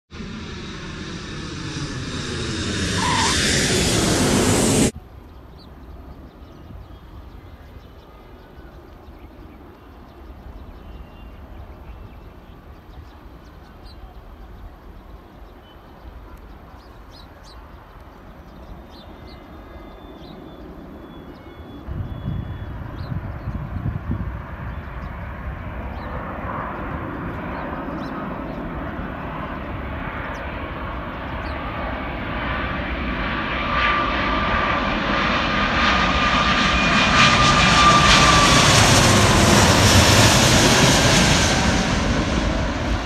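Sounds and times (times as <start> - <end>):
jet-like rush flyby: 0.1 - 5.0, 32.3 - 43.0
steady low rumble: 0.1 - 5.0
faint bird chirps: 1.6 - 4.2, 5.3 - 23.7
wind on microphone: 21.9 - 26.2.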